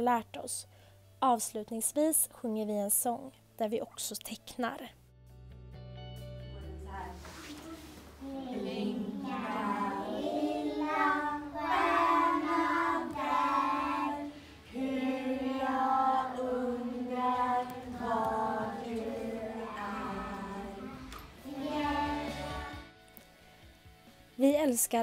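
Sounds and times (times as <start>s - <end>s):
women and children singing: 8.2s - 22.9s.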